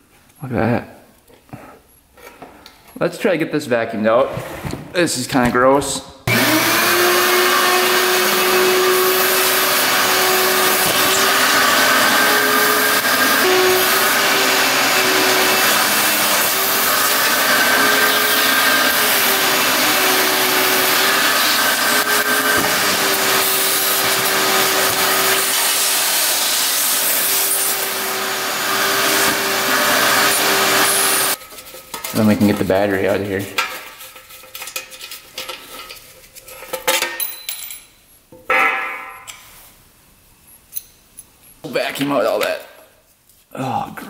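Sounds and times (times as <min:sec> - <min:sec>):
vacuum cleaner running: 0:06.3 - 0:31.4.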